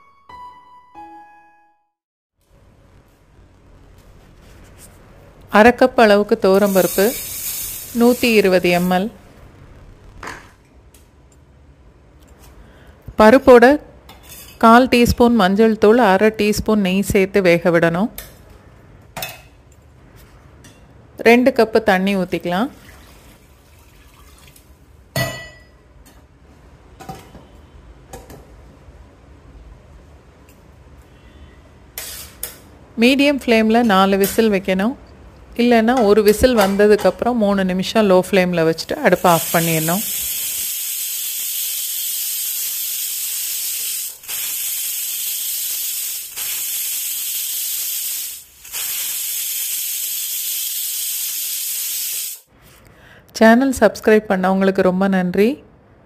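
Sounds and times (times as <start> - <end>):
pressure cooker hissing: 6.4 - 9.1, 39.0 - 52.5
water pouring into a pot: 22.8 - 24.8.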